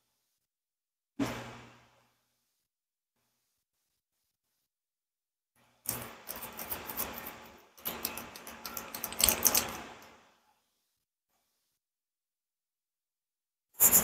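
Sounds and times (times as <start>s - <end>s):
noodles clicking and crinkling in bowl: 7.8s - 10.0s.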